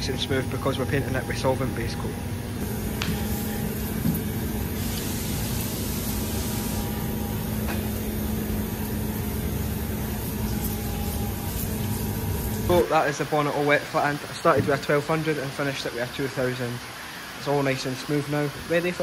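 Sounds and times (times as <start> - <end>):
mechanical drone with low hum: 0.0 - 15.9.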